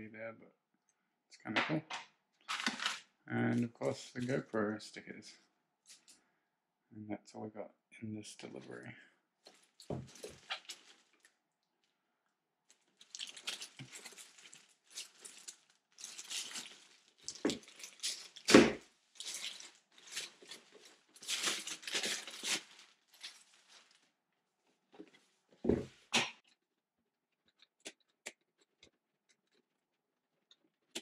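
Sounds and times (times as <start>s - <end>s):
plastic and cardboard rustling: 2.5s - 3.0s, 9.5s - 11.2s, 12.7s - 24.1s.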